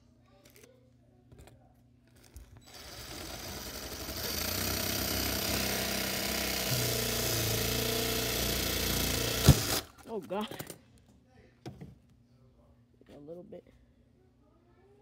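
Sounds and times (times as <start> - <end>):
power drill boring: 2.6 - 9.9.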